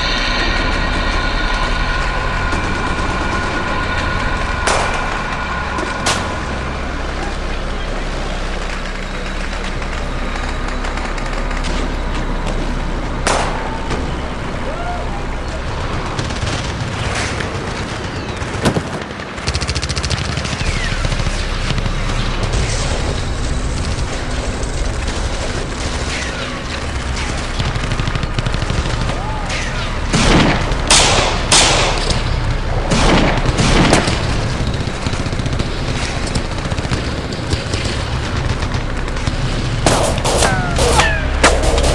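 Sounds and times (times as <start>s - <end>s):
low rumble: 0.0s - 19.4s
gunshots and bullet impacts: 15.9s - 41.9s
loud sharp gunshots: 18.1s - 22.7s, 39.8s - 41.9s
loud sharp crack: 39.8s - 41.9s.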